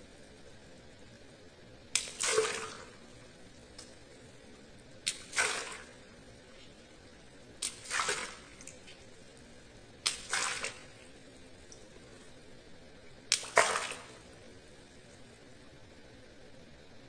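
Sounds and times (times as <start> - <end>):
water splash: 1.9 - 3.1, 5.0 - 6.0, 7.6 - 9.1, 10.0 - 11.9, 13.3 - 14.4.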